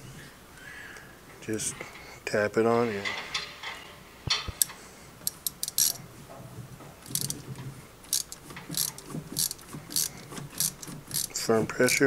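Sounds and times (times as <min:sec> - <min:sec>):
hand ratchet clicking: 0:04.3 - 0:06.0, 0:07.0 - 0:07.4, 0:08.0 - 0:12.0.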